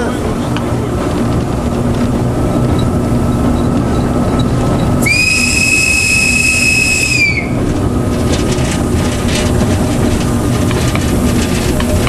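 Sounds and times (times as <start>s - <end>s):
diesel engine running: 0.0s - 12.0s
locomotive whistle: 5.0s - 7.7s.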